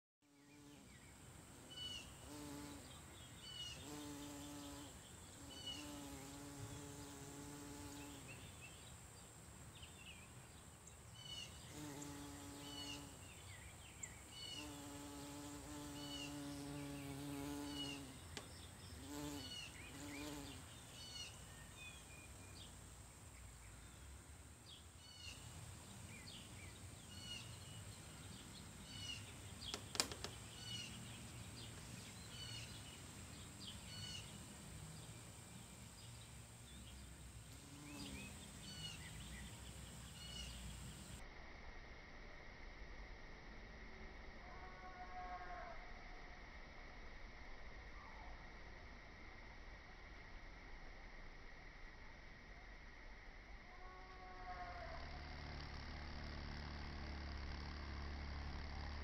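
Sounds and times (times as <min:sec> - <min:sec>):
bumblebee buzzing: 0:00.3 - 0:08.4, 0:11.6 - 0:13.4, 0:14.3 - 0:21.4, 0:37.4 - 0:41.2, 0:54.6 - 0:59.0.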